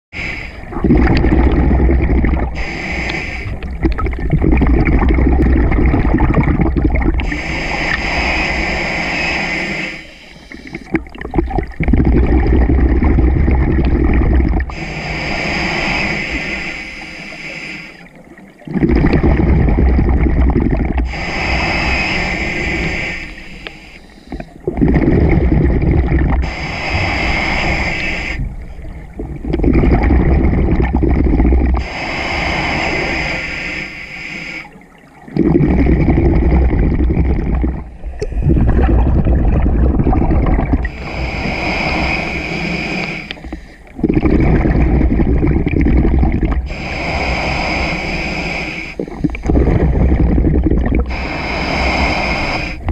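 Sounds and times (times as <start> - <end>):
regulator inhale hiss: 0.2 - 0.7, 2.5 - 3.8, 7.2 - 10.9, 14.7 - 18.2, 21.0 - 24.6, 26.4 - 28.9, 31.7 - 34.9, 40.8 - 44.0, 46.6 - 49.5, 51.0 - 52.9
exhaled bubbles gushing: 0.5 - 9.3, 10.5 - 16.6, 18.0 - 33.3, 34.7 - 48.0, 48.8 - 52.9.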